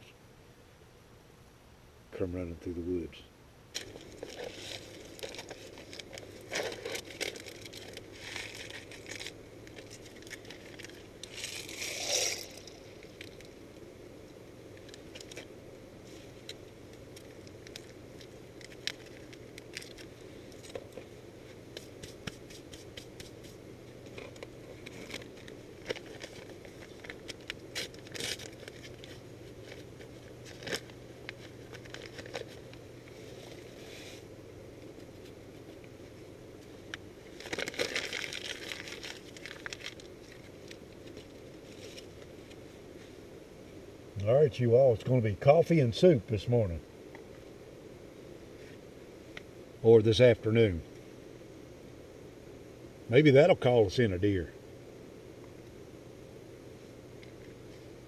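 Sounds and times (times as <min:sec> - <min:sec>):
loud packaging rustle: 0:03.8 - 0:13.4, 0:21.8 - 0:34.2, 0:37.3 - 0:42.6
food packaging crinkling and tearing: 0:03.8 - 0:13.5, 0:16.4 - 0:21.1, 0:21.7 - 0:33.8, 0:36.9 - 0:42.6.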